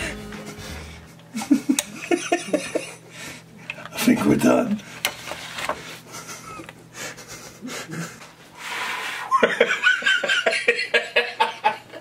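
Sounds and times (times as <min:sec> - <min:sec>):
person laughing: 0:00.0 - 0:03.0, 0:06.1 - 0:08.2, 0:09.3 - 0:12.0
breathy hiss: 0:06.9 - 0:09.4.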